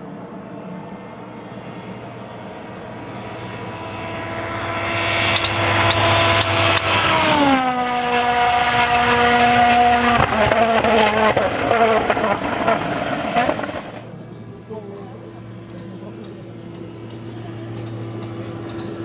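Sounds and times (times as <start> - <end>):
rally car engine running hard: 0.0 - 19.0
sharp engine cracks: 10.1 - 14.1.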